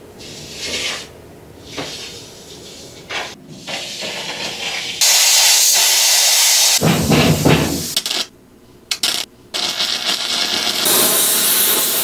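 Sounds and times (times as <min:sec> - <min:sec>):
plasma cutter hissing: 0:05.0 - 0:06.8, 0:09.6 - 0:12.0.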